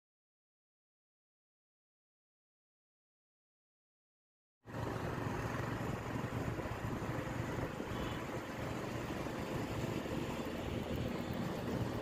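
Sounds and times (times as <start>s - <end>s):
traffic and road noise: 4.6s - 12.0s.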